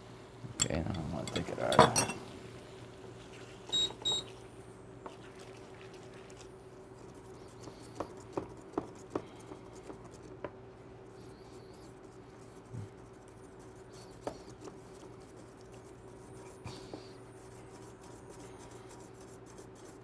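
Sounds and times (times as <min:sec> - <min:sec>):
faint steady hum: 0:00.0 - 0:20.0
short cooktop beeps: 0:03.7 - 0:04.3.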